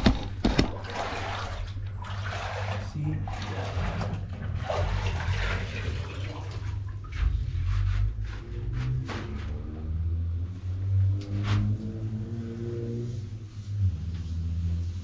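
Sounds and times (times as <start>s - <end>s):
wet sponge swishing on render: 7.1s - 15.0s.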